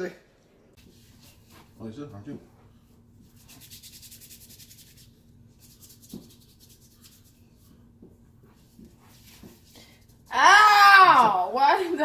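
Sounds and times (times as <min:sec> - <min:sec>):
fingers rubbing on skin: 0:03.2 - 0:09.8.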